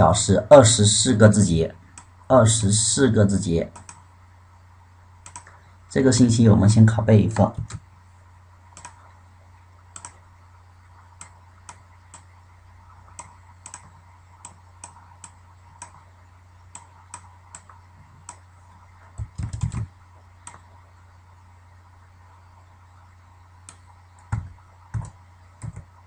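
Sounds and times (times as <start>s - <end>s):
steady low hum: 0.0s - 26.0s
mouse and keyboard clicks: 5.2s - 5.5s, 8.8s - 9.0s, 10.0s - 10.2s, 13.1s - 16.0s, 19.2s - 20.6s.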